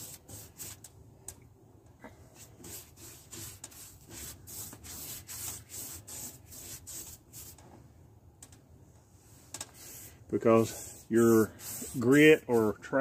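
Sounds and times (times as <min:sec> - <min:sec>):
small brush stroking: 0:00.0 - 0:00.9, 0:02.4 - 0:07.8, 0:09.2 - 0:13.0.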